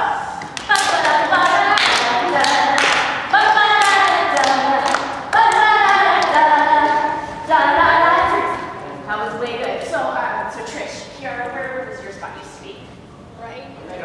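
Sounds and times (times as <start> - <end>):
hands clapping: 0.4 - 6.4
children singing: 0.7 - 9.0.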